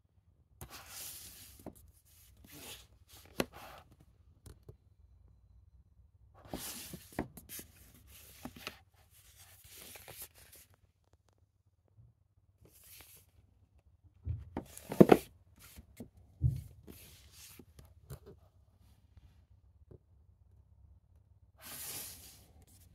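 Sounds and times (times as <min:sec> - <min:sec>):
plastic cases scraping and clacking: 0:14.6 - 0:15.8.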